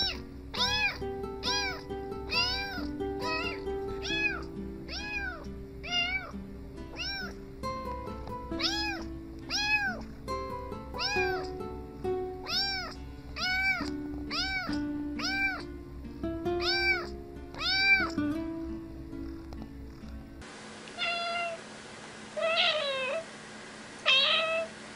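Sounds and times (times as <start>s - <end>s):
cat meowing: 0.0s - 7.4s, 8.6s - 10.1s, 11.0s - 11.6s, 12.4s - 15.7s, 16.6s - 18.2s, 21.0s - 21.6s, 22.4s - 23.3s, 24.0s - 24.7s
background music: 0.0s - 20.4s.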